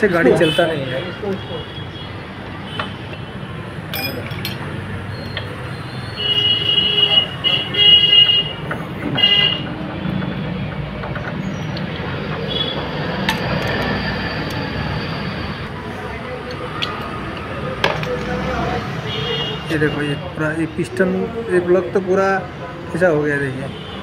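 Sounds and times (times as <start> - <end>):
traffic noise: 0.0 - 24.0.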